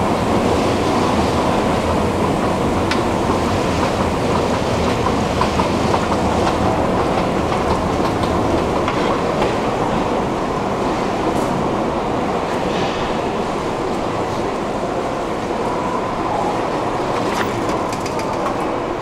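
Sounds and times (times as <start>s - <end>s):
light clicks and clatter: 17.2s - 18.7s.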